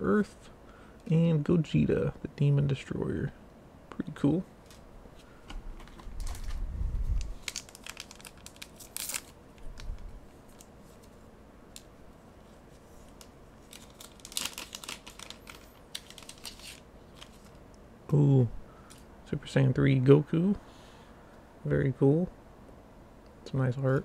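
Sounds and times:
foil wrapper tearing and crinkling: 0:07.2 - 0:10.7, 0:13.1 - 0:17.6.

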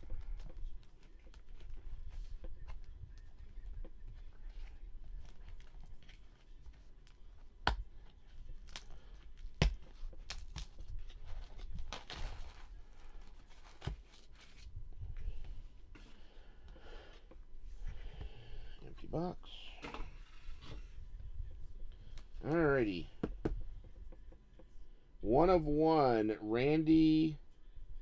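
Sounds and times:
cards rustling and scraping: 0:00.0 - 0:16.4, 0:17.1 - 0:21.2.

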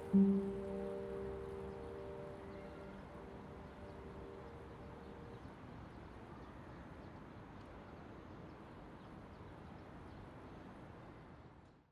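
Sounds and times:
held music notes: 0:00.0 - 0:05.1
low city rumble: 0:00.0 - 0:11.8.

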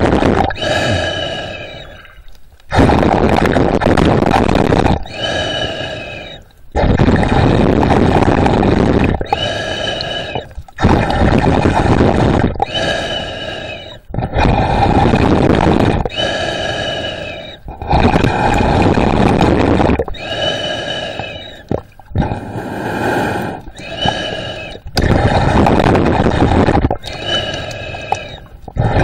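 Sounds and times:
breathing through snorkel: 0:00.5 - 0:02.2, 0:05.0 - 0:06.6, 0:09.2 - 0:29.0.

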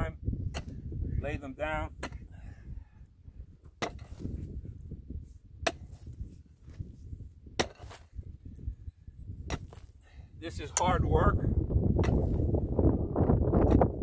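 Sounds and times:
digging tool striking dry ground: 0:00.5 - 0:00.8, 0:02.0 - 0:02.3, 0:03.7 - 0:04.4, 0:05.6 - 0:06.8, 0:07.4 - 0:08.2, 0:09.4 - 0:10.0, 0:10.6 - 0:11.1, 0:12.0 - 0:12.6, 0:13.4 - 0:14.0.

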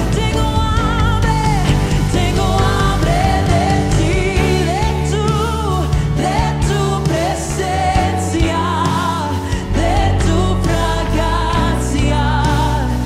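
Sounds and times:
person singing with vibrato: 0:00.0 - 0:13.0
sustained instrumental backing: 0:00.0 - 0:13.0.

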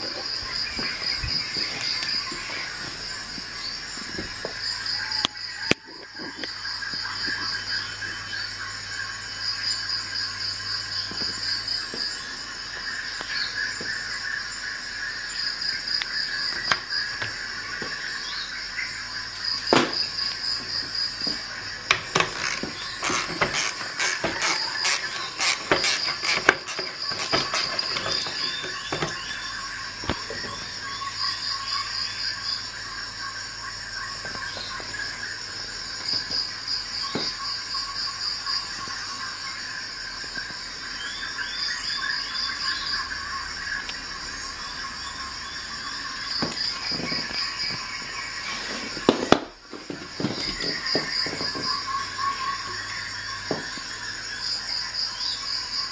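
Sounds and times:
insects chirping in trills: 0:00.0 - 0:55.9
sharp clicks and cracks: 0:21.9 - 0:29.2.

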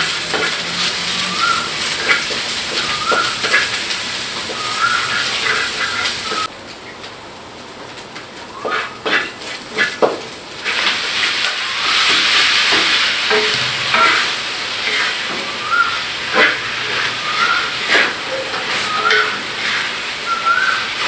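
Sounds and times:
greens sizzling in hot oil: 0:00.0 - 0:21.0.

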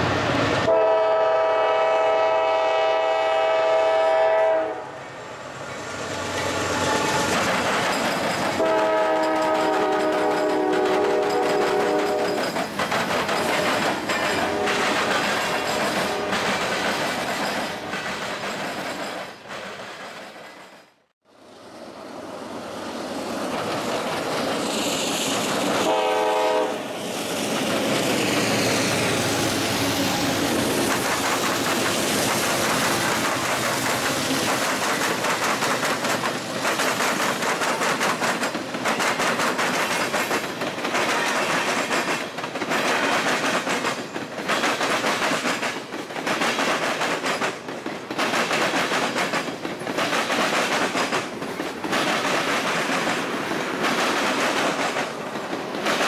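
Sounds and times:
locomotive horn: 0:00.6 - 0:05.0, 0:08.6 - 0:12.4, 0:14.3 - 0:16.5, 0:25.8 - 0:26.9
train wheels clattering on rails: 0:05.7 - 0:21.0, 0:23.3 - 0:56.0.

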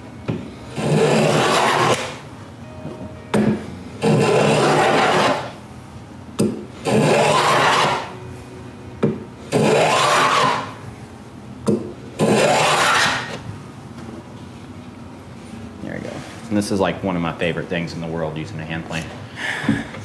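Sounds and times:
hand plane shaving wood: 0:00.7 - 0:02.2, 0:04.0 - 0:05.5, 0:06.9 - 0:08.1, 0:09.5 - 0:10.7, 0:12.2 - 0:13.3.

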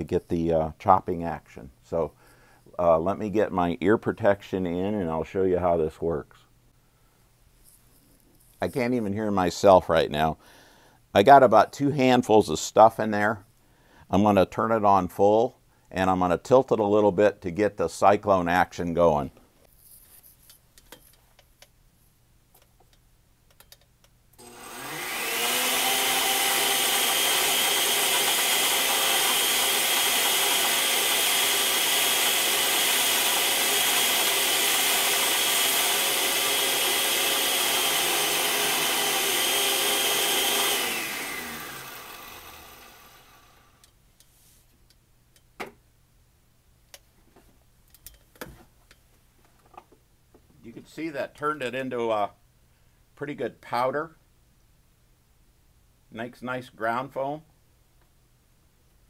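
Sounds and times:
blender motor grinding foam: 0:24.4 - 0:43.8.

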